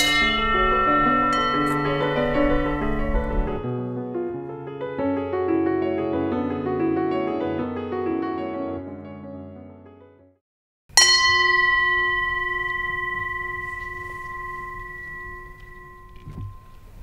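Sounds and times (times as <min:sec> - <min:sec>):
singing bowl ringing: 0:00.0 - 0:03.6, 0:10.9 - 0:17.0.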